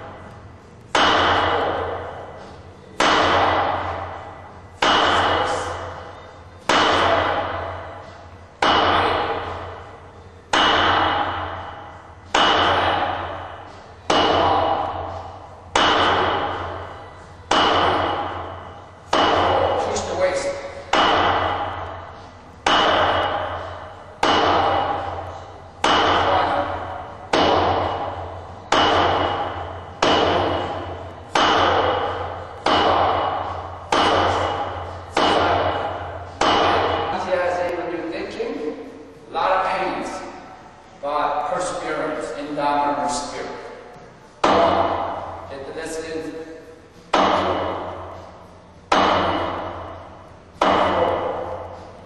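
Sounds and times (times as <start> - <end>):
hand strikes ringing: 3.0 - 37.8.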